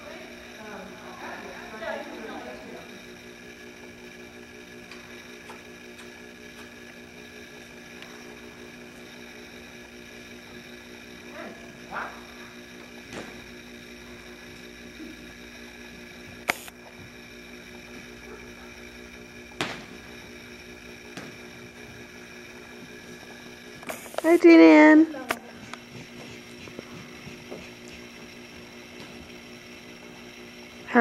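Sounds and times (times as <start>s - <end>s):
electrical hum: 0.0s - 31.0s
sharp clicks: 16.4s - 16.8s, 23.8s - 24.4s.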